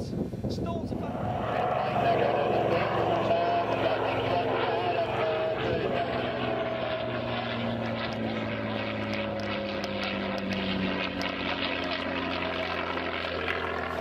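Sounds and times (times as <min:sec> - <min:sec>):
propeller aircraft engine droning: 0:00.0 - 0:14.0.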